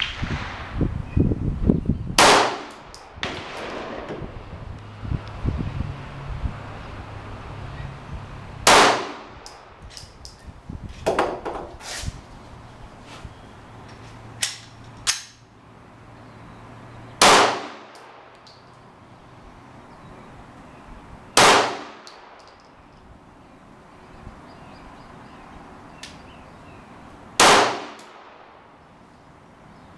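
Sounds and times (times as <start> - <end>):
pistol shots: 2.2 - 4.4, 8.6 - 9.5, 17.2 - 18.2, 21.4 - 22.4, 27.4 - 28.5.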